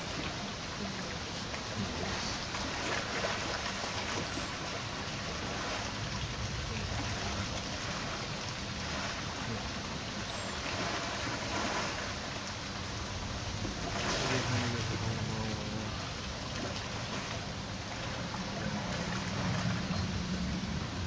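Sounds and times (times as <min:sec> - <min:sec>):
water splashing and sloshing: 0:00.0 - 0:21.0.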